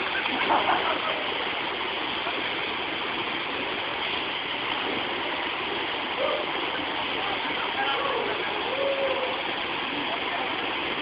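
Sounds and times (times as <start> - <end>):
waterfall rushing into pool: 0.0 - 11.0.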